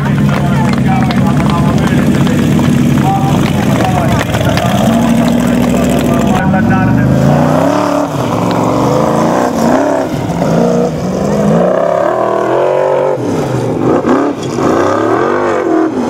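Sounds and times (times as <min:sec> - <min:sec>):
wheels scrabbling on sand: 0:00.0 - 0:06.4
buggy engine revving: 0:00.0 - 0:16.0.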